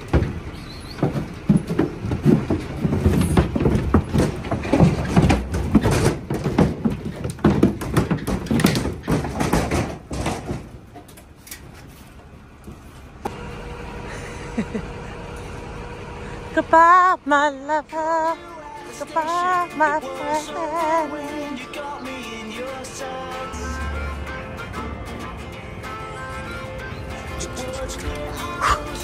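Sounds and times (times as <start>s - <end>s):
hooves on wooden floor: 0.0s - 13.4s
powered ramp hum and whine: 12.2s - 29.0s.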